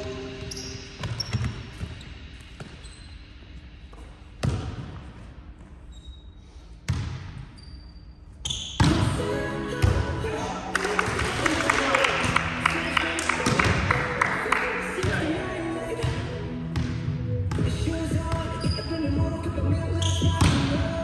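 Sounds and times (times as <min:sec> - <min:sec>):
volleyball smacks echoing: 0:13.3 - 0:14.0.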